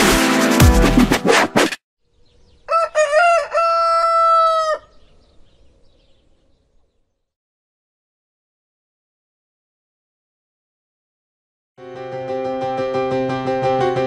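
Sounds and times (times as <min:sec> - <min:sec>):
electronic intro music: 0:00.0 - 0:01.7
rooster crowing: 0:02.6 - 0:05.0.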